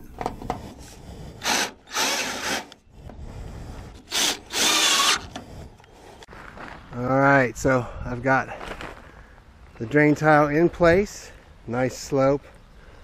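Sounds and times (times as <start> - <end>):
cordless drill motor whining: 1.4 - 3.1, 3.9 - 5.5.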